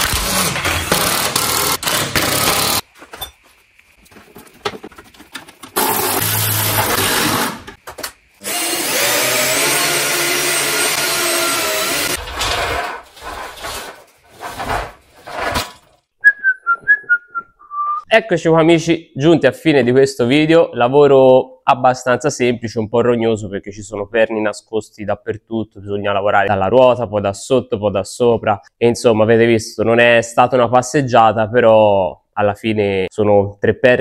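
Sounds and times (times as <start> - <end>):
cordless drill motor running: 8.4 - 12.2.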